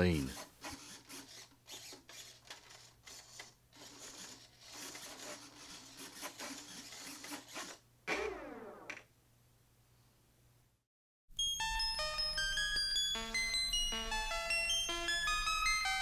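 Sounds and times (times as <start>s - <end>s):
mechanical clicking and whirring: 0.4s - 8.3s.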